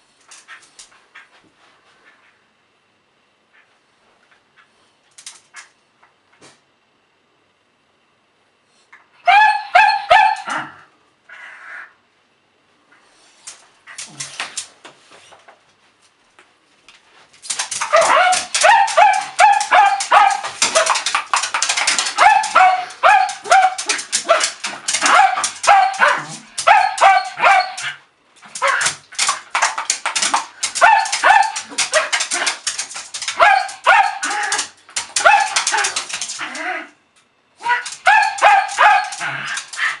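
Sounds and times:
dog yipping and barking: 9.2s - 10.6s, 17.8s - 21.1s, 21.7s - 29.0s, 30.7s - 32.6s, 33.2s - 36.3s, 37.6s - 40.0s
dog snapping teeth: 17.5s - 22.2s, 28.6s - 33.4s.

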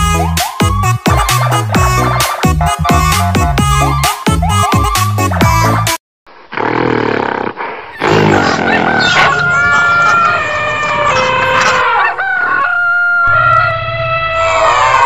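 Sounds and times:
rough animal call: 6.5s - 15.0s
rooster crowing: 8.4s - 15.0s.

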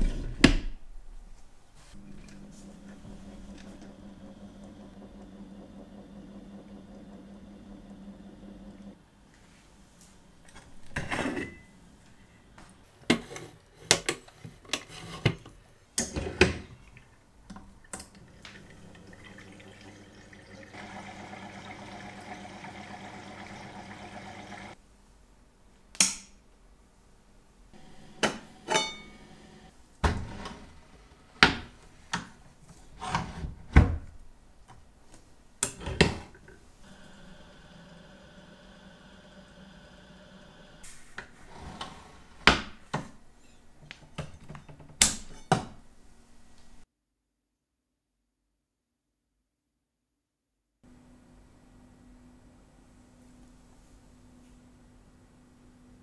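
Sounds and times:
machine motor running: 2.0s - 8.9s, 20.8s - 24.8s, 36.8s - 40.8s.

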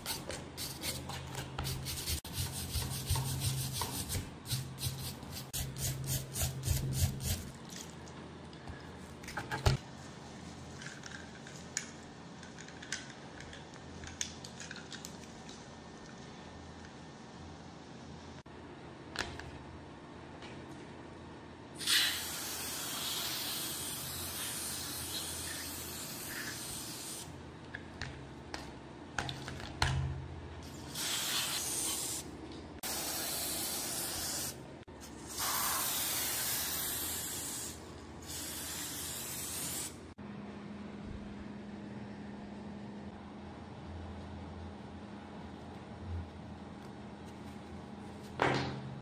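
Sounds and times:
spray can hissing: 35.3s - 40.0s.

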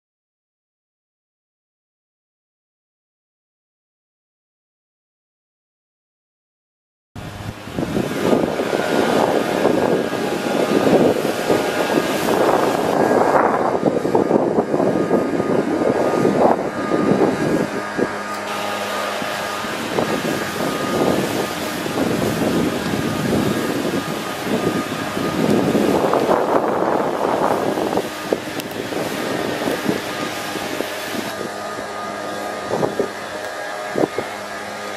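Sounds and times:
wind buffeting microphone: 7.2s - 34.9s.

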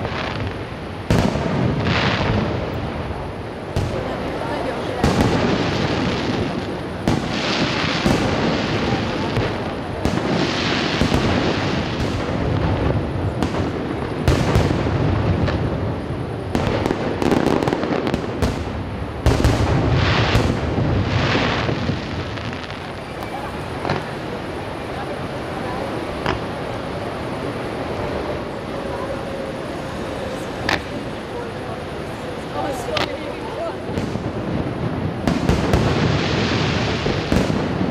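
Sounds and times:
continuous hissing: 0.0s - 37.9s
firework shells bursting: 25.8s - 28.5s.

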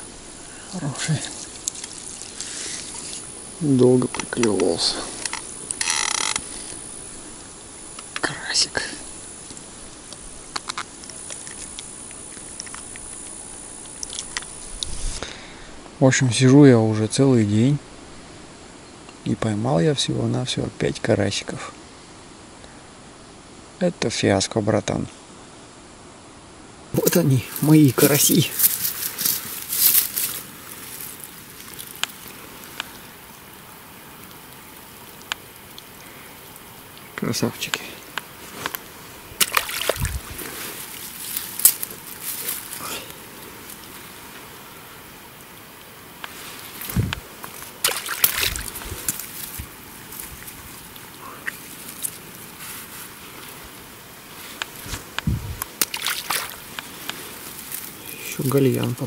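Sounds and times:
water splashing: 0.8s - 4.0s, 27.0s - 59.0s
water dripping: 1.1s - 4.7s, 27.0s - 53.7s, 54.5s - 59.0s.

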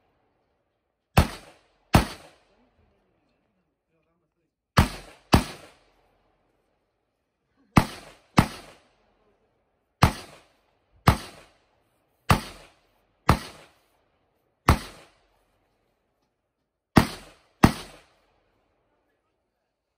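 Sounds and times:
rifle shots with echo: 1.1s - 2.7s, 4.8s - 6.5s, 7.8s - 9.2s, 10.0s - 15.5s, 16.9s - 18.8s.

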